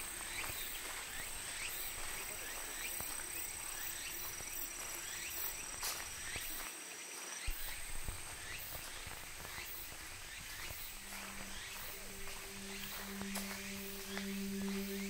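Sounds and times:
insects or frogs chirping: 0.0s - 15.0s
thin high whine: 11.0s - 15.0s.

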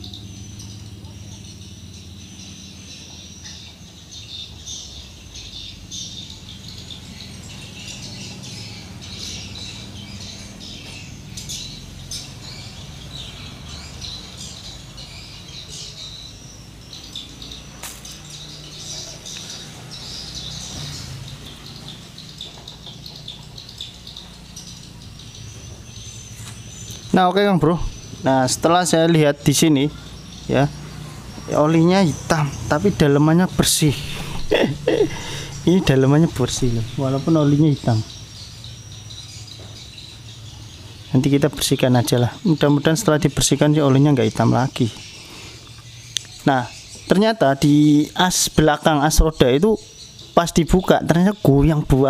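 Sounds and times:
steady low hum: 0.0s - 47.1s
birds chirping: 0.0s - 52.0s.

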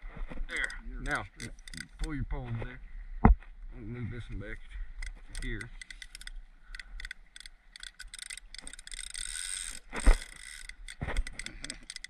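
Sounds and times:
fishing reel clicking: 0.6s - 2.1s, 5.0s - 12.0s.

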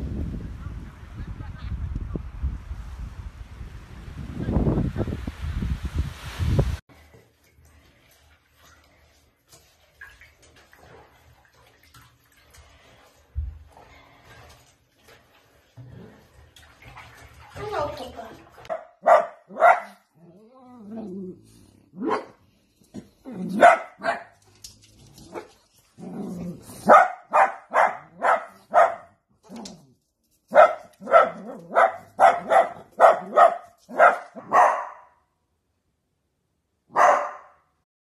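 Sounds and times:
dogs barking: 18.6s - 20.0s, 23.5s - 24.4s, 26.8s - 29.1s, 30.5s - 35.1s, 36.9s - 37.6s.

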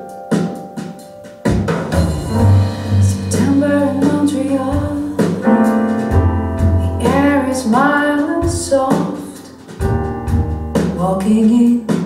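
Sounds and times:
piano: 0.0s - 12.0s
bass: 1.4s - 12.0s
woman singing: 2.2s - 5.7s, 6.7s - 9.6s, 10.8s - 12.0s.

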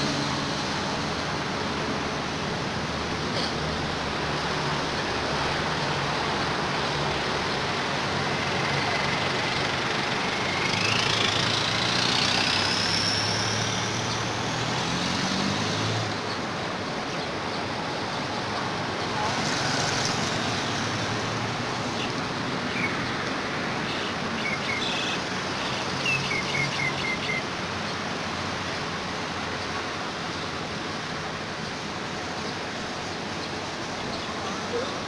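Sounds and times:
vehicle engine passing: 0.0s - 16.3s
road traffic noise: 0.0s - 35.0s.

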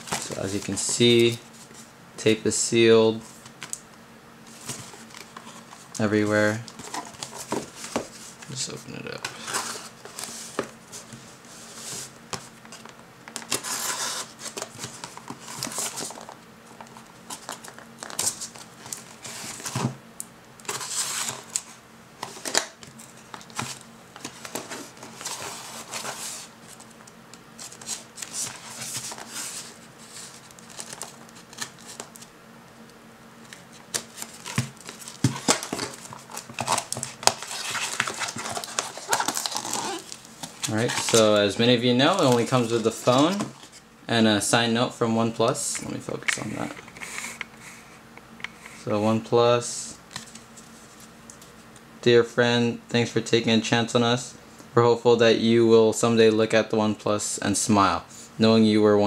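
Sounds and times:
packing tape peeling off cardboard: 33.9s - 41.4s
cardboard box crinkling and knocking: 34.0s - 41.2s.

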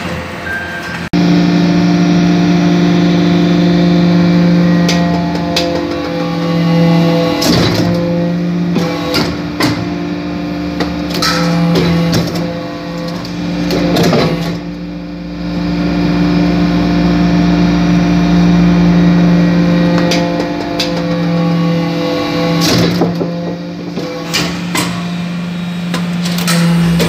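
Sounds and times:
hydraulic press humming: 0.0s - 27.0s
metallic clanks and knocks: 10.8s - 14.6s.

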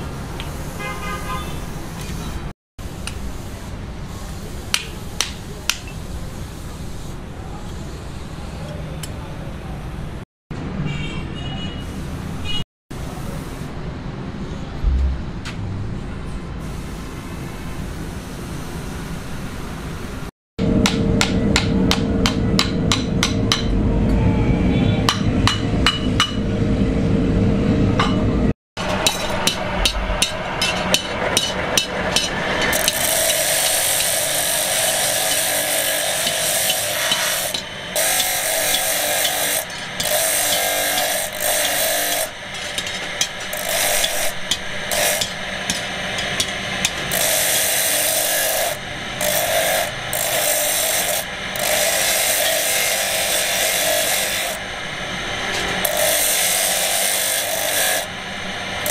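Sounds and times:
steady hum: 20.6s - 58.9s
bench grinder grinding metal: 28.8s - 58.9s.

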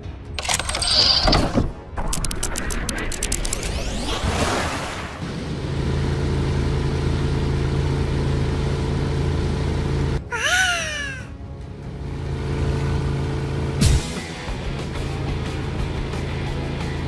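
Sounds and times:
cartoon train engine hum: 5.2s - 17.0s.

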